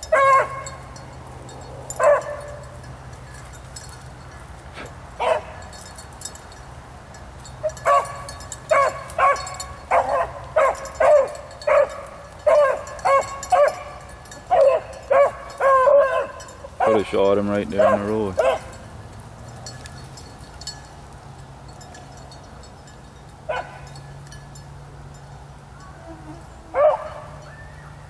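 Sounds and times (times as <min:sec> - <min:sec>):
beagle baying: 0:00.0 - 0:01.0, 0:01.9 - 0:02.9, 0:04.8 - 0:05.7, 0:07.6 - 0:18.9, 0:25.8 - 0:28.0.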